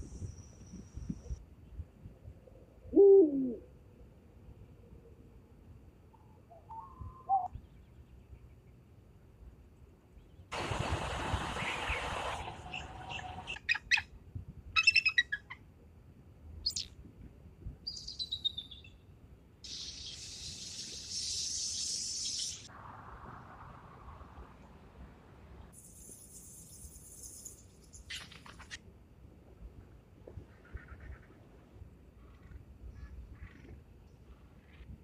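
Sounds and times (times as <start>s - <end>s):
hissing background noise: 15.9s - 35.0s.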